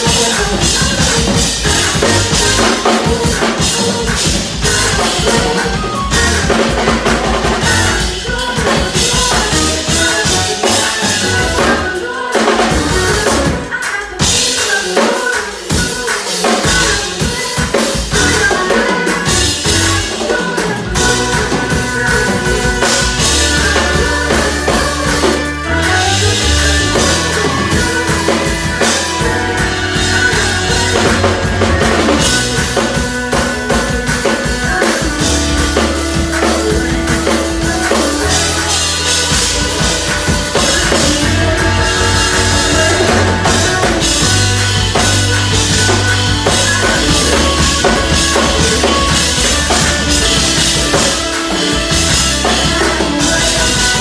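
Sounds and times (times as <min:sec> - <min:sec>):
low bass notes: 0:00.0 - 0:08.2, 0:20.9 - 0:54.0
drum kit played fast: 0:00.0 - 0:54.0.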